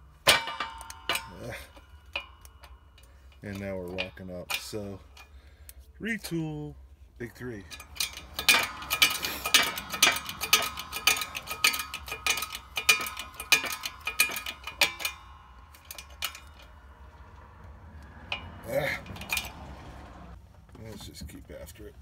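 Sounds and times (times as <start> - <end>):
hydraulic hand pump clicking: 7.7 - 20.2.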